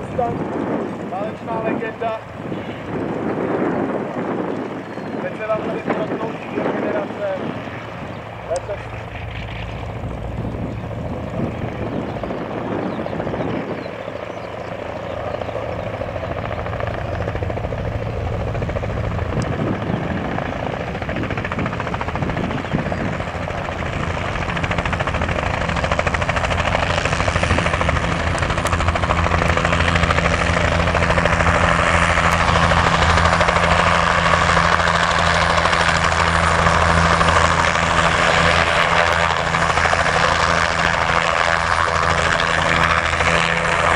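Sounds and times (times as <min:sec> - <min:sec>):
helicopter rotor and engine drone: 0:00.0 - 0:43.9.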